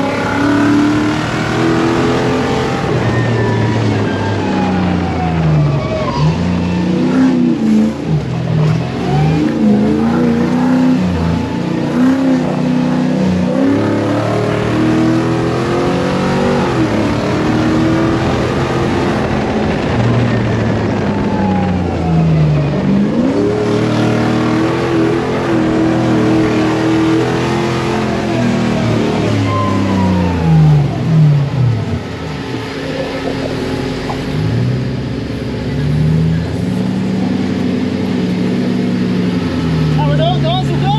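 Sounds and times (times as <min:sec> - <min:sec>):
buggy engine revving: 0:00.0 - 0:40.9
tyres rumbling on gravel: 0:30.0 - 0:37.7.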